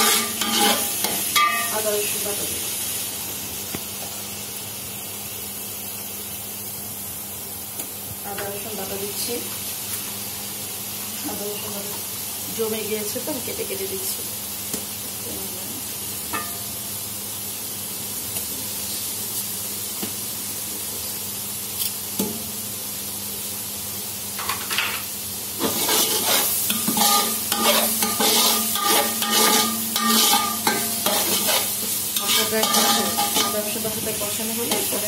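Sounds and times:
spatula scraping a pan: 0.0s - 1.7s, 25.6s - 33.9s
onion frying in oil: 0.0s - 35.0s.

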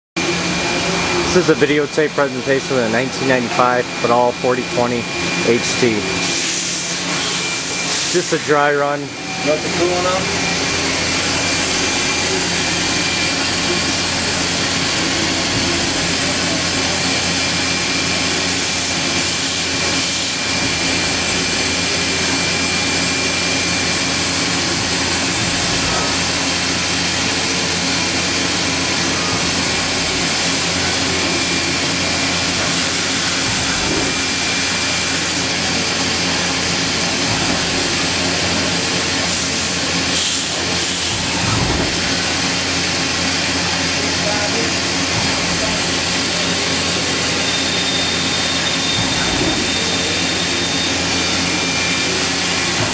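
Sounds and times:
machine mechanical hum and hiss: 0.2s - 52.9s.

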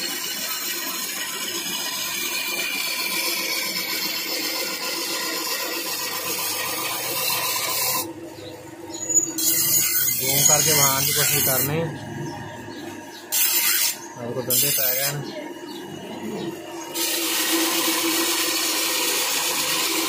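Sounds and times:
blade scraping on toothing wheel: 0.0s - 15.4s, 16.2s - 20.0s
machine motor humming: 10.2s - 20.0s.

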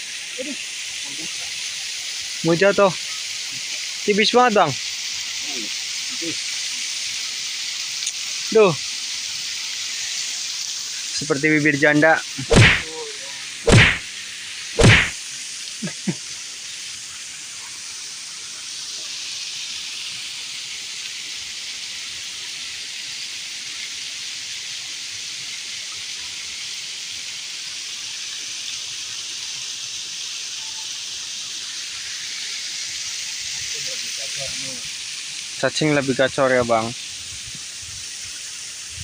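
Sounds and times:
flowing river water: 0.0s - 39.0s
loud swish: 12.5s - 12.9s, 13.7s - 14.0s, 14.8s - 15.2s.

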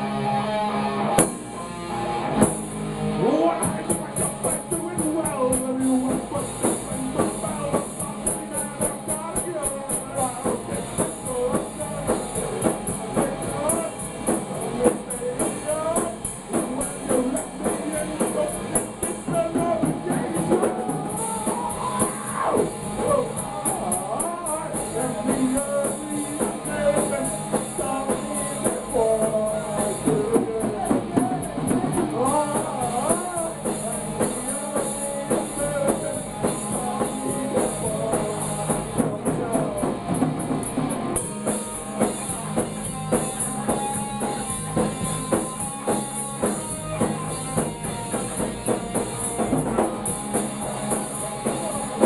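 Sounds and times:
drums: 0.0s - 52.0s
electric guitar: 0.0s - 52.0s
man singing into a microphone: 3.2s - 40.4s.

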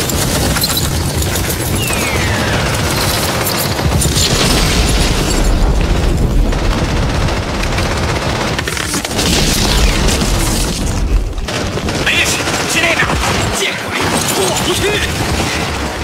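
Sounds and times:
rifle and machine-gun fire: 0.0s - 16.0s.

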